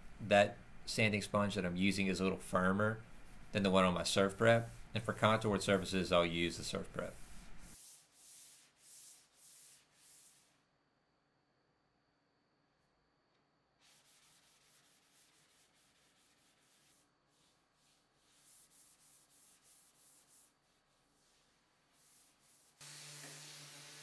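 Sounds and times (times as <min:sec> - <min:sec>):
sanding sponge rubbing wood: 0:04.4 - 0:10.6, 0:13.8 - 0:24.0.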